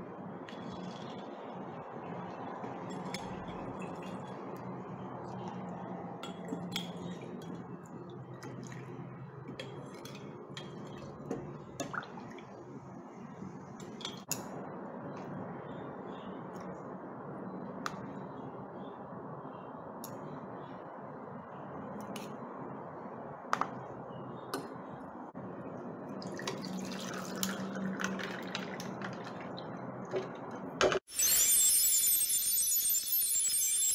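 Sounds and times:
ice clinking: 26.3s - 29.4s
liquid poured into glass over ice: 26.3s - 29.4s.

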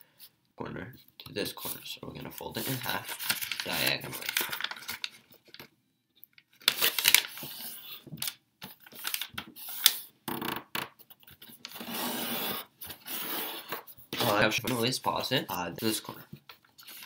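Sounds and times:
paper being folded: 1.6s - 5.6s, 6.5s - 10.0s, 16.5s - 17.0s
paper sliding on wooden tabletop: 11.8s - 13.9s.

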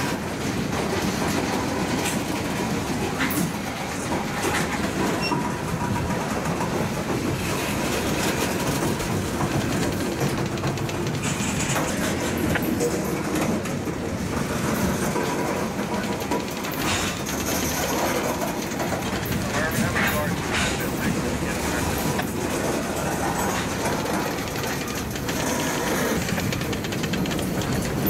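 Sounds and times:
train wheels on rails: 0.0s - 28.0s
wheels clicking over rail joints: 0.0s - 28.0s.

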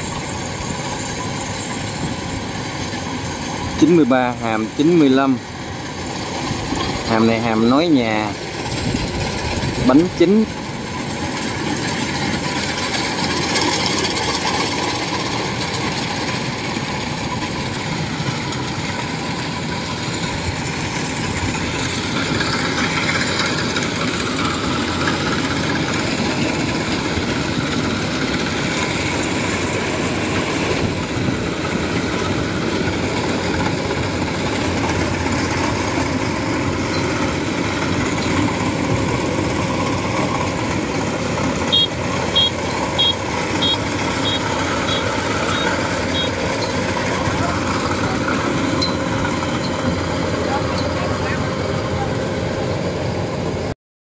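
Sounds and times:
combine harvester running: 0.0s - 53.8s.

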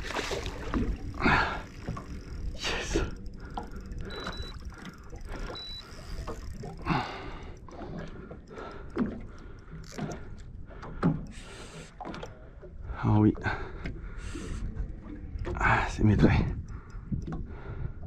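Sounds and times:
boat and water noise: 0.0s - 18.0s
high beeps: 4.0s - 4.7s, 5.5s - 6.2s.

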